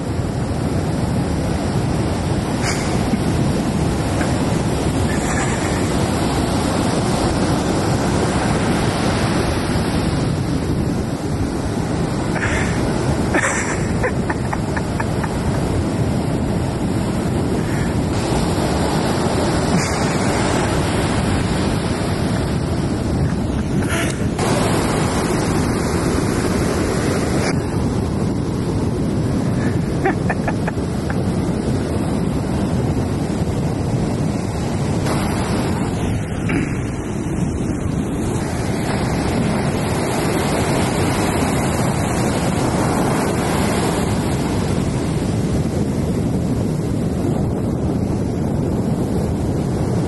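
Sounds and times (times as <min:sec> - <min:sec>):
ocean waves breaking: 0:00.0 - 0:50.0.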